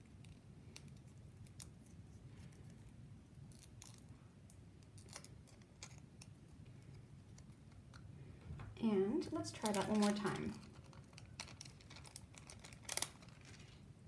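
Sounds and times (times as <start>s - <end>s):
paper handling: 9.6s - 13.8s.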